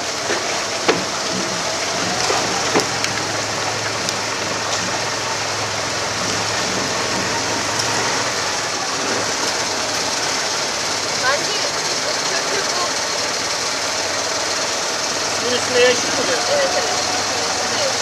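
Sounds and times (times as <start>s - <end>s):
low motor hum: 0.0s - 18.0s
water rushing past a boat: 0.0s - 18.0s
sharp knocks: 0.3s - 3.2s.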